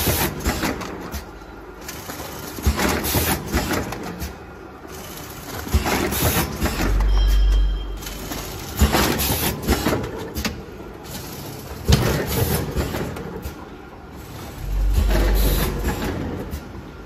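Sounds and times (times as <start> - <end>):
packing machine clicks and knocks: 0.0 - 13.7
low motor drone: 14.6 - 16.1.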